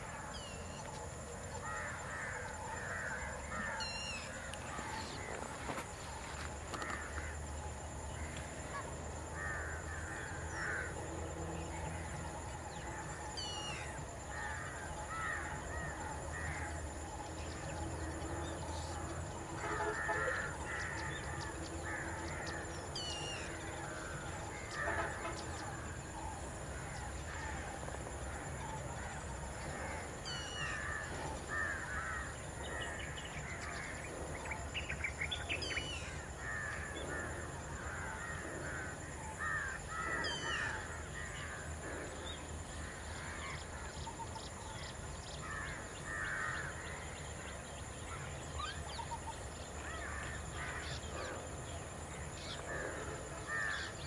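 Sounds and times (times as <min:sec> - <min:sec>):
crows cawing: 0:01.6 - 0:05.8, 0:09.4 - 0:11.0, 0:13.7 - 0:16.8, 0:19.5 - 0:25.7, 0:29.7 - 0:34.0, 0:36.1 - 0:42.0, 0:45.4 - 0:47.0, 0:52.7 - 0:54.0.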